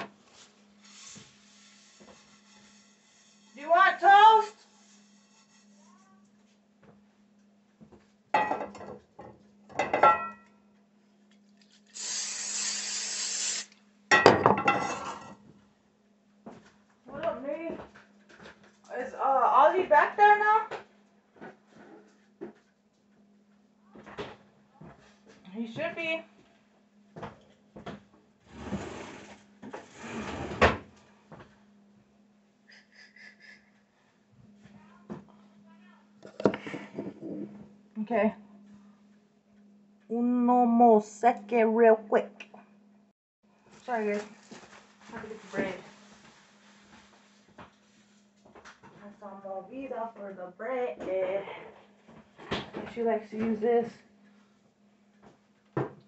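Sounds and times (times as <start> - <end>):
aerosol spray can hissing: 0.8 - 3.6, 4.4 - 5.8, 11.9 - 13.7.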